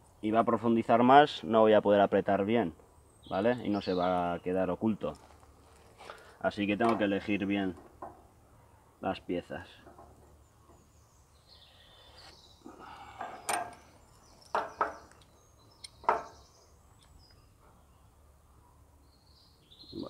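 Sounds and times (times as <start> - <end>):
bolts knocking and clicking: 6.8 - 8.2, 13.2 - 16.4.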